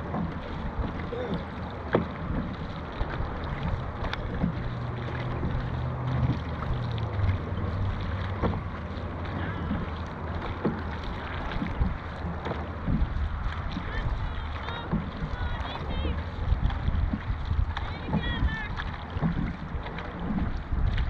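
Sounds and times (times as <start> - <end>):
water rushing and splashing: 0.0 - 21.0
wind noise on microphone: 11.1 - 21.0.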